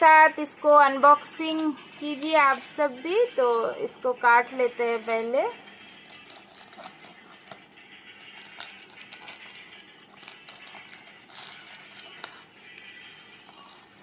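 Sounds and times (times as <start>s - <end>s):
plastic crinkling: 5.9s - 14.0s
scissors snipping tape: 6.0s - 7.6s, 8.4s - 12.5s.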